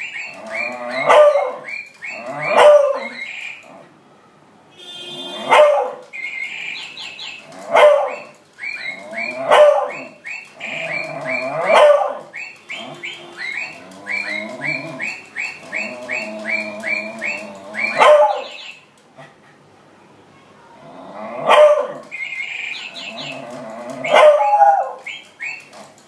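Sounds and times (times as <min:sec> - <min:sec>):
parrot chirping: 0:00.0 - 0:03.7, 0:05.5 - 0:18.9, 0:22.0 - 0:25.9
dog barking: 0:01.0 - 0:01.6, 0:02.4 - 0:03.2, 0:05.4 - 0:06.0, 0:07.7 - 0:08.3, 0:09.4 - 0:10.1, 0:10.9 - 0:12.3, 0:17.8 - 0:18.6, 0:21.4 - 0:22.0, 0:24.0 - 0:25.0.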